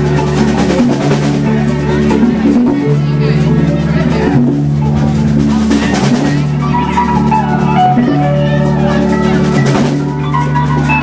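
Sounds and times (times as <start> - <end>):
bass line: 0.0 - 11.0
drum kit: 0.0 - 11.0
guitar: 0.0 - 11.0
keyboard chords: 0.0 - 11.0.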